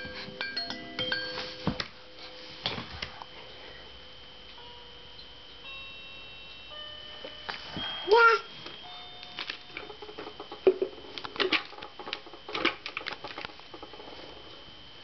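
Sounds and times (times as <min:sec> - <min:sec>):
electronic toy piano notes: 0:04.6 - 0:10.6.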